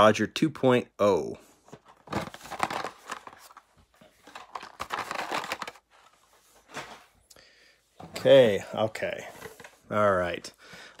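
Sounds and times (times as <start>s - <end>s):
cardboard packaging crinkling: 1.9s - 6.3s.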